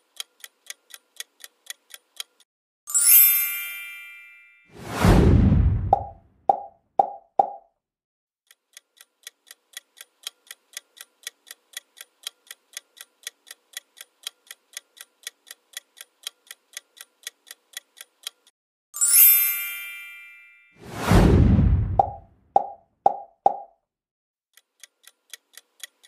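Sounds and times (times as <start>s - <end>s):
bright chime: 2.9s - 4.7s, 19.0s - 20.8s
loud whoosh: 4.8s - 6.2s, 20.8s - 22.2s.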